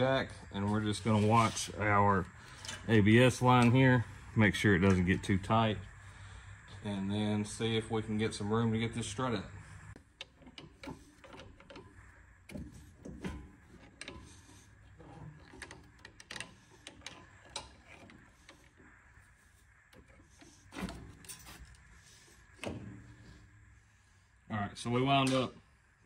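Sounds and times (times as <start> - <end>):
metal clicks taps and scrapes: 9.9 - 23.5.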